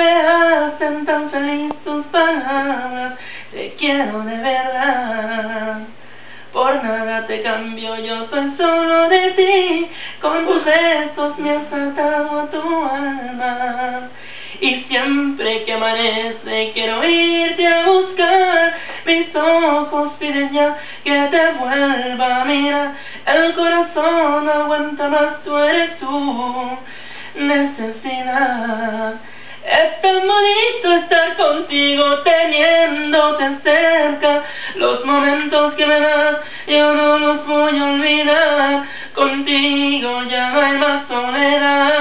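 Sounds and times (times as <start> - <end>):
person singing unaccompanied: 0.0 - 42.0.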